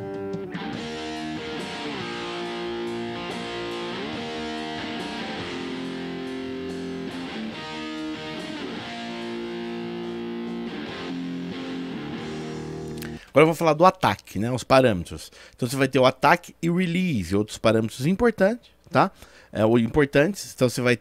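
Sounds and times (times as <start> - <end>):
electric guitar chords: 0.0 - 13.2.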